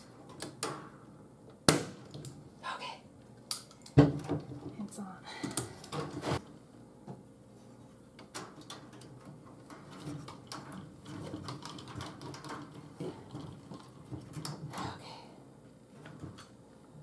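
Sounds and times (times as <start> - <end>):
wire rustling: 7.6 - 14.8
chicken wire clicking and rattling: 8.3 - 14.8.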